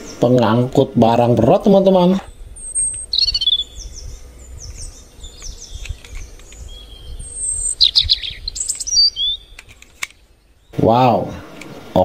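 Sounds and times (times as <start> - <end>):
low background rumble: 0.0 - 12.0
small birds chirping: 0.0 - 12.0
whistled bird notes: 2.1 - 10.8
faint clicks: 4.6 - 6.8, 8.5 - 10.3.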